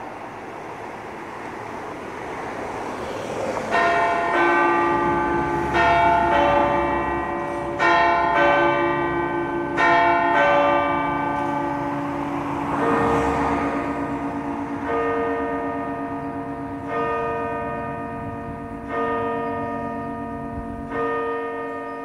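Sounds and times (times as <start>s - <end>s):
rushing background noise: 0.0s - 21.1s
church bells ringing: 0.0s - 22.0s.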